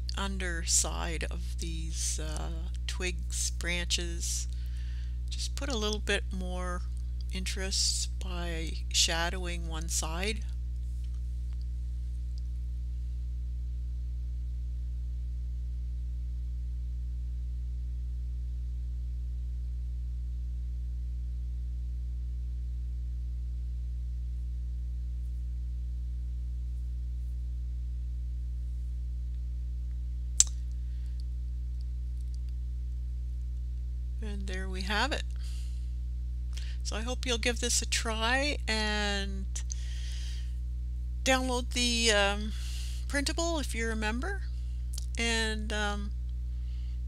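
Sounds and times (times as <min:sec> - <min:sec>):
low electrical hum: 0:00.0 - 0:47.0
sharp click: 0:30.4 - 0:30.6.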